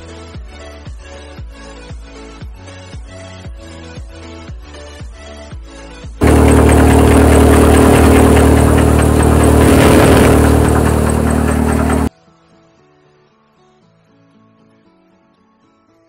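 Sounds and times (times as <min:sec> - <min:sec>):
thresher machine hum: 0:06.2 - 0:12.1.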